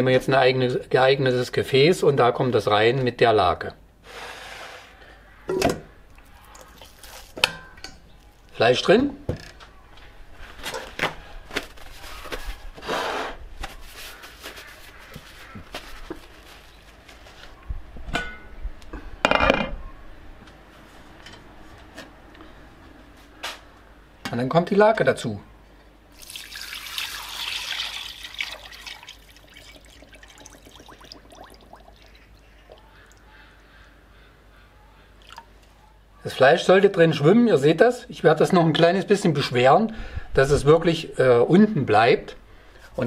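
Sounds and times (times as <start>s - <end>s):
bubbly plinks: 26.2s - 32.9s
liquid pouring into metal bowl: 26.2s - 33.2s.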